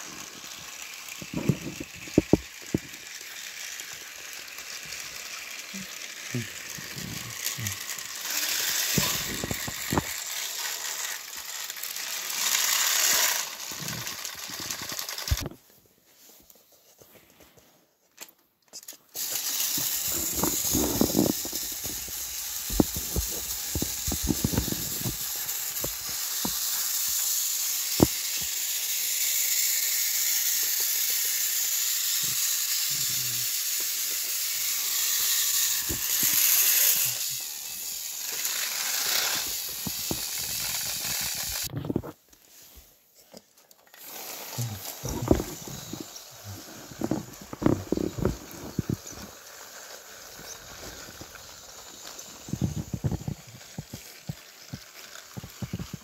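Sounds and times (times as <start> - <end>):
wheels clicking and rattling: 0.0 - 15.5, 18.9 - 41.7, 43.6 - 56.0
toy train motors whirring: 0.0 - 17.0, 18.2 - 56.0.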